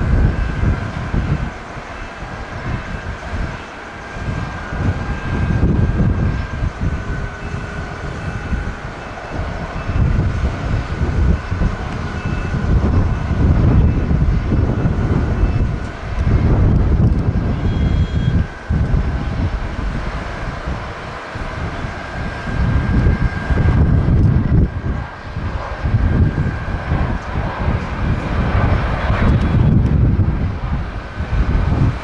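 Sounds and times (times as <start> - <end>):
high whine: 0.0 - 32.0
jet engine rumble: 0.0 - 32.0
wind buffeting on microphone: 0.0 - 32.0.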